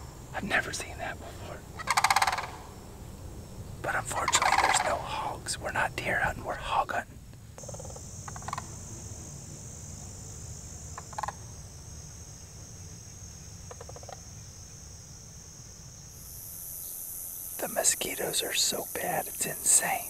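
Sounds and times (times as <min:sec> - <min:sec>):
crickets chirping: 0:00.0 - 0:20.0
high insect buzz: 0:00.0 - 0:20.0
cranes calling: 0:00.6 - 0:02.8, 0:03.8 - 0:06.8, 0:07.6 - 0:09.0, 0:11.0 - 0:11.5.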